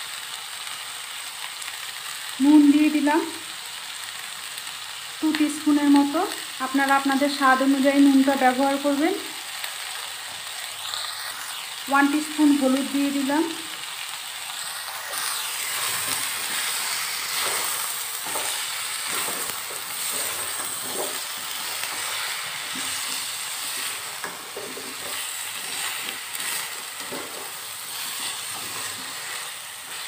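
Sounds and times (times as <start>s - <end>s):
vegetables sizzling in oil: 0.0s - 30.0s
spatula scraping pan: 14.6s - 30.0s.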